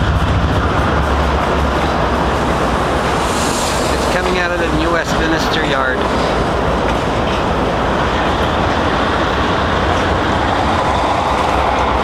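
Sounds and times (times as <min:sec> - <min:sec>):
steel train wheels rumbling on rail: 0:00.0 - 0:12.0.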